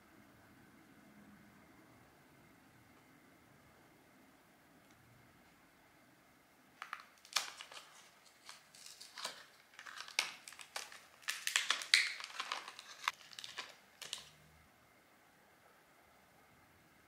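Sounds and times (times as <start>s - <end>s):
packaging crinkling: 6.8s - 14.4s.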